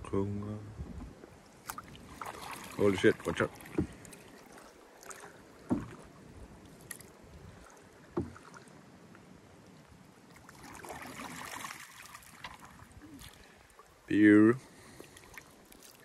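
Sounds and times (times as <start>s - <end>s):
water swishing around paddle: 0.6s - 16.0s
sharp knocks on canoe: 3.3s - 4.2s, 5.6s - 6.1s, 8.1s - 8.6s.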